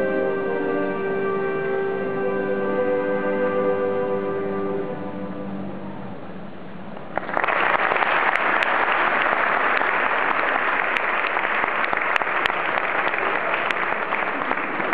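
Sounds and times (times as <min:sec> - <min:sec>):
audience applauding: 0:07.1 - 0:14.9.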